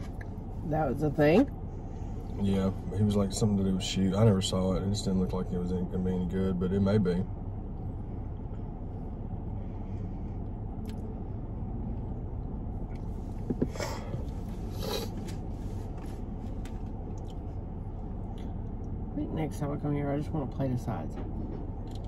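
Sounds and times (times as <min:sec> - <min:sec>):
car cabin hum: 0:00.0 - 0:22.0
soft eating noises: 0:10.2 - 0:19.0.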